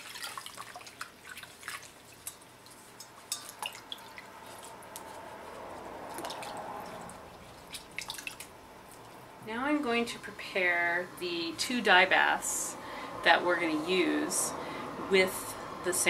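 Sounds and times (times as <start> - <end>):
water splashing in metal bowl: 0.0 - 8.6
hands swishing fabric in water: 0.0 - 9.1.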